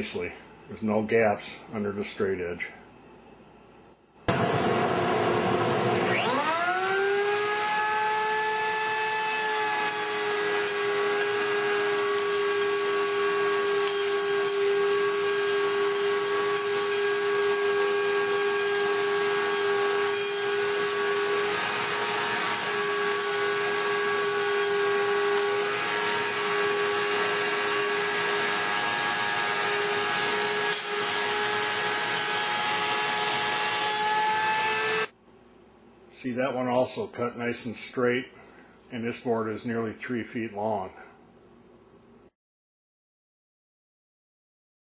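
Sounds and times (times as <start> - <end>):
router high whine: 4.3 - 35.1.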